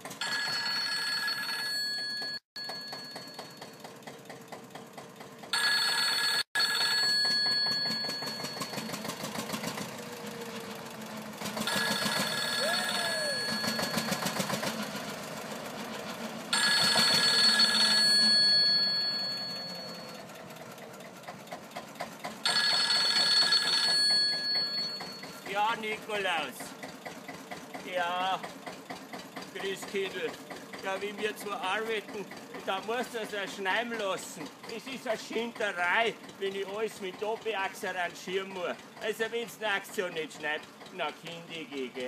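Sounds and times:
tractor engine running: 0.0 - 1.0, 1.7 - 42.0
telephone bell ringing: 0.1 - 3.9, 5.5 - 9.1, 11.6 - 14.7, 16.5 - 20.3, 22.4 - 25.5.

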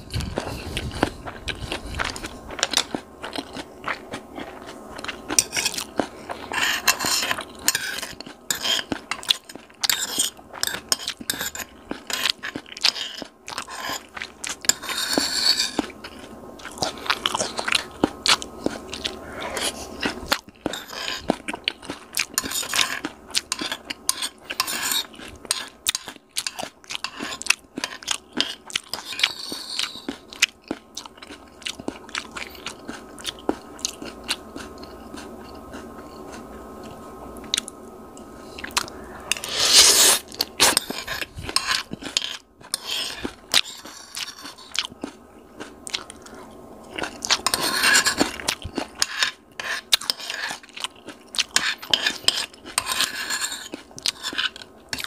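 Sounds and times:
crunching and chewing food: 0.0 - 55.0
metal fork scraping bowl: 5.3 - 16.3, 20.6 - 21.4, 22.3 - 30.2, 39.3 - 44.8, 47.2 - 50.7, 51.5 - 55.0.

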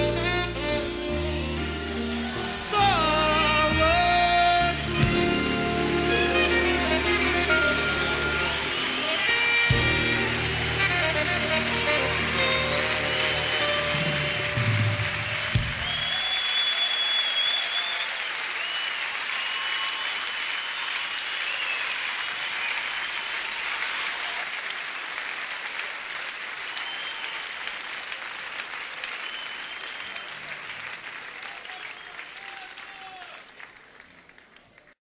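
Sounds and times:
audience applauding: 4.8 - 35.0
high whistles: 6.3 - 10.0, 12.0 - 23.5, 26.7 - 27.6, 29.1 - 30.5.

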